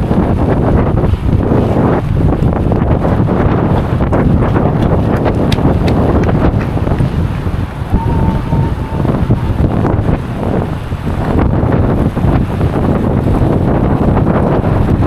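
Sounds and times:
wind buffeting microphone: 0:00.0 - 0:15.0
thin high tone: 0:07.9 - 0:10.4.

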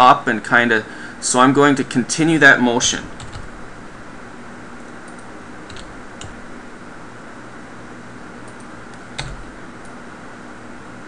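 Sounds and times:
keyboard and mouse clicks: 0:08.4 - 0:10.0.

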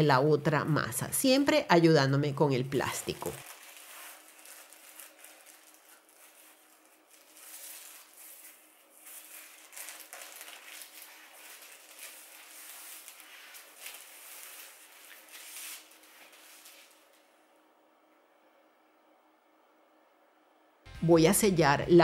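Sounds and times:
cling film crinkling: 0:02.9 - 0:17.4.

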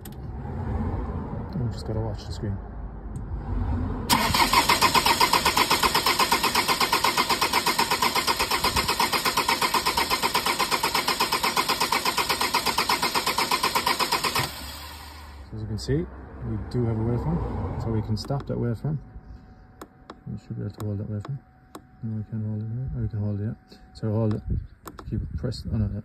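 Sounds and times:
engine cranking on starter motor: 0:04.1 - 0:15.5.

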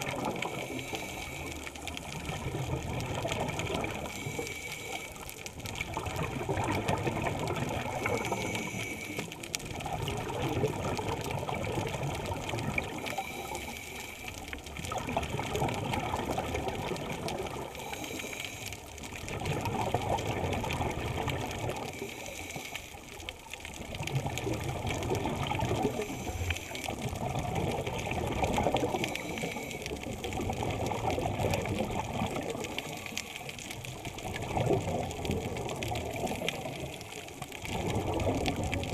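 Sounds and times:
underwater bubbling air: 0:00.0 - 0:38.9
diver breathing through regulator: 0:00.4 - 0:02.0, 0:03.9 - 0:05.3, 0:08.0 - 0:09.4, 0:17.7 - 0:18.9, 0:25.9 - 0:27.0, 0:28.8 - 0:30.0.

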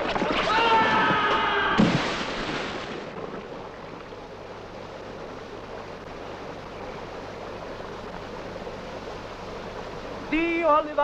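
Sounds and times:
big splash into water: 0:00.0 - 0:03.3.

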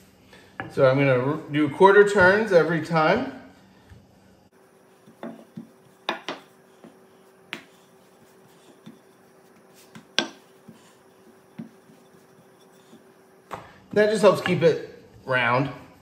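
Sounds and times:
faint steady hum: 0:00.0 - 0:16.0
rolling pin rolling dough: 0:04.5 - 0:16.0
rolling pin knocking on stone: 0:05.0 - 0:14.6.

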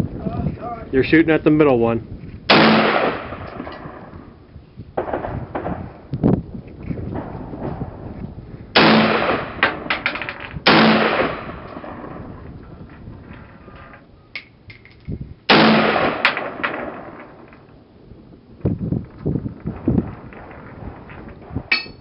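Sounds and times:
rifle shots: 0:02.5 - 0:04.1, 0:05.0 - 0:05.9, 0:08.8 - 0:12.2, 0:15.5 - 0:17.6.

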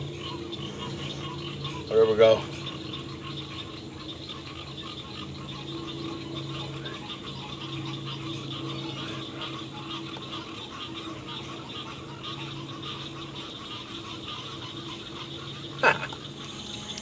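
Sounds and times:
frogs calling: 0:00.0 - 0:17.0
insects buzzing: 0:00.0 - 0:17.0
low steady hum: 0:00.0 - 0:17.0.

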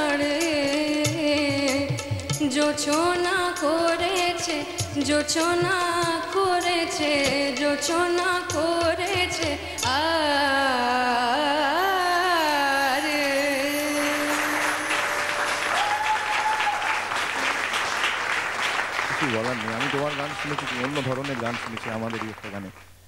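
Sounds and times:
woman singing: 0:00.0 - 0:15.8
audience applause: 0:14.3 - 0:22.9.

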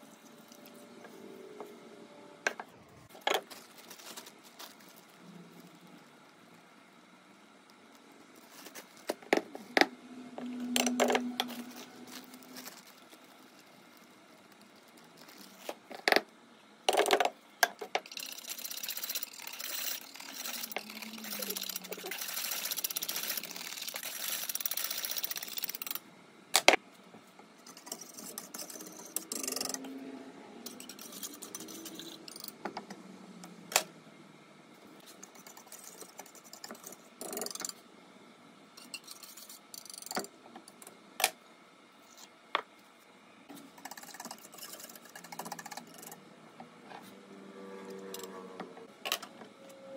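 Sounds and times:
utensil stirring in metal saucepan: 0:18.0 - 0:25.9, 0:43.7 - 0:46.2.

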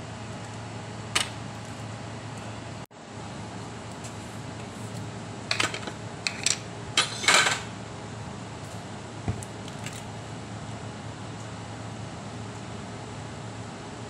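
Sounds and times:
air conditioner humming: 0:00.0 - 0:14.0.

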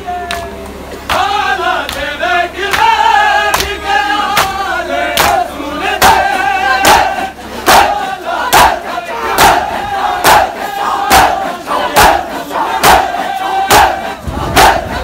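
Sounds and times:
men chanting in unison: 0:01.1 - 0:15.0
group chest-beating strikes: 0:05.2 - 0:05.4, 0:06.0 - 0:15.0.

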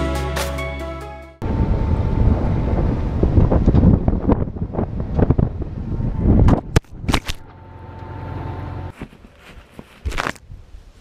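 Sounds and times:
low machine hum: 0:01.4 - 0:08.9
camera hitting the ground: 0:06.5 - 0:07.5, 0:08.9 - 0:10.5
rubbing on microphone: 0:08.9 - 0:10.4.

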